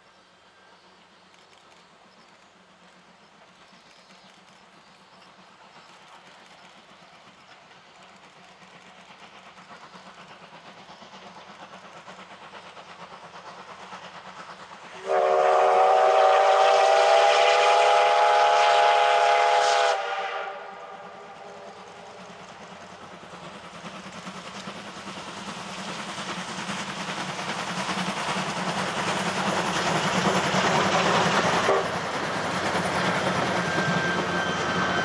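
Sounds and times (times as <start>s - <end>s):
steam locomotive chuffing: 0.0s - 35.0s
steam whistle blast: 15.0s - 21.7s, 31.6s - 32.0s, 33.2s - 35.0s.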